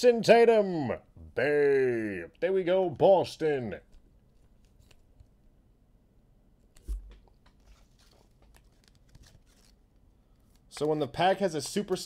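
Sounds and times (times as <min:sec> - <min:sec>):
card packs crinkling and clicking: 0:07.2 - 0:12.0.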